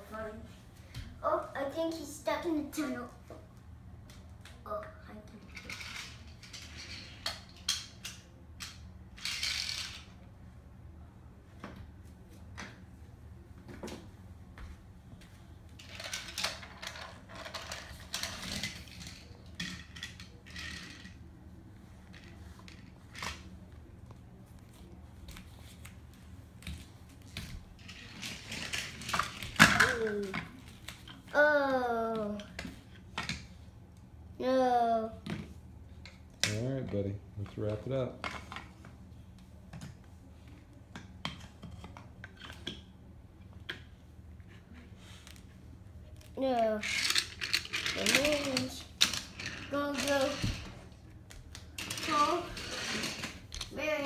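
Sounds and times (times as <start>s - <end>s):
wooden toy trains clattering: 5.4s - 10.1s, 15.8s - 21.2s, 27.8s - 30.6s, 46.6s - 50.8s, 51.8s - 53.9s
wooden toy trains clicking: 46.6s - 50.7s.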